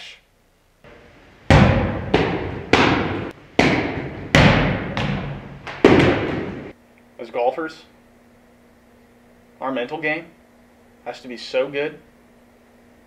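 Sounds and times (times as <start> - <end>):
heavy ringing hammer blows: 0.9 - 6.7.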